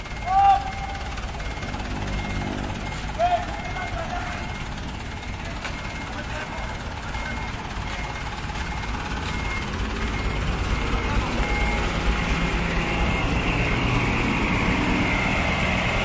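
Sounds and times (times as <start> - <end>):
faint short high beeps: 0.0 - 12.4
truck engine rumbling: 0.0 - 16.0.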